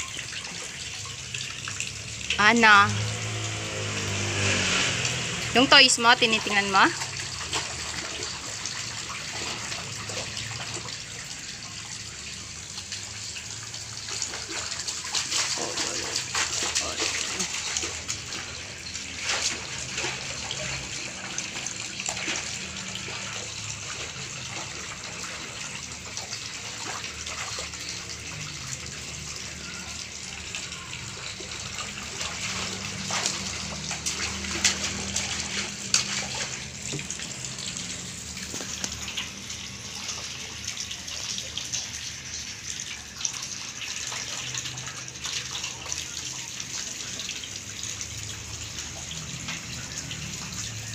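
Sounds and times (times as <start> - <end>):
child splashing water in basin: 0.1 - 11.6, 12.8 - 29.1, 30.2 - 42.0.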